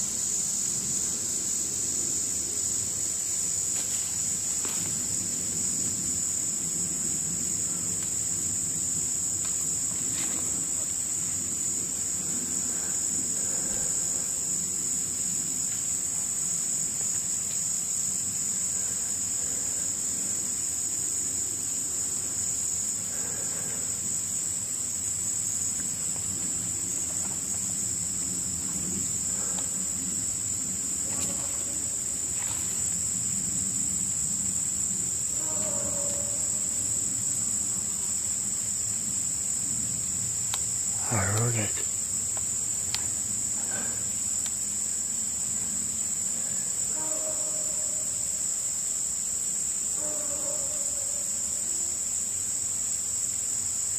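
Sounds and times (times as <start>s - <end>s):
crickets trilling: 0.0s - 53.9s.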